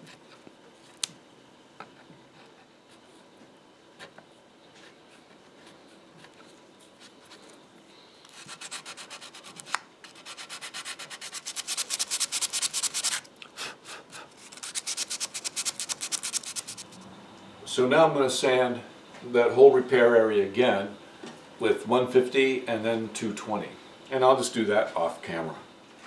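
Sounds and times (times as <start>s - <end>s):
sandpaper rubbing on wood: 8.3s - 13.2s, 14.4s - 17.0s.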